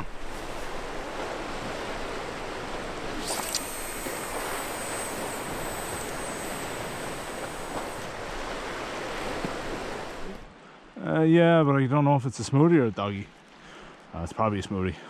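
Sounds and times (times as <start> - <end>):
waves washing against rocks: 0.0 - 10.5
wind: 0.0 - 15.0
high thin hiss: 3.2 - 8.5.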